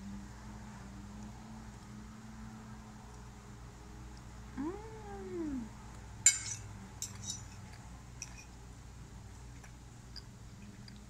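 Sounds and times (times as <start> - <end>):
fork clinking on ceramic plate: 6.3 - 8.5.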